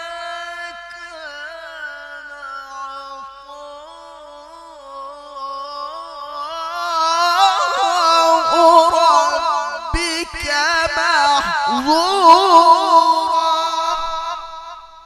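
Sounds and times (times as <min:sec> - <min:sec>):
man reciting melodically: 0:00.0 - 0:15.0.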